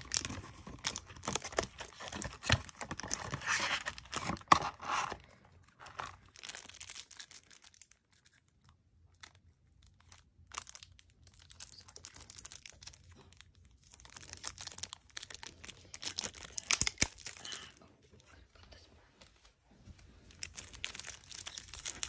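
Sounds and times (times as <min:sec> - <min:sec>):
plastic wrapping crinkling: 0:00.0 - 0:17.8, 0:19.9 - 0:22.0.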